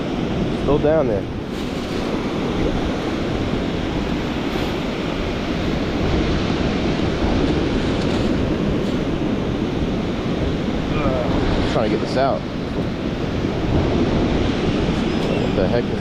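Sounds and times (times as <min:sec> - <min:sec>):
surf washing on beach: 0:00.0 - 0:16.0
wind rumbling on microphone: 0:00.0 - 0:16.0.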